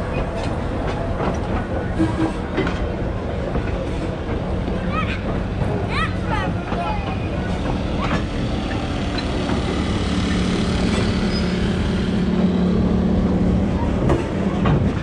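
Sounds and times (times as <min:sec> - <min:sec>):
diesel locomotive engine drone: 0:00.0 - 0:15.0
wheels rumbling on rails: 0:00.0 - 0:15.0.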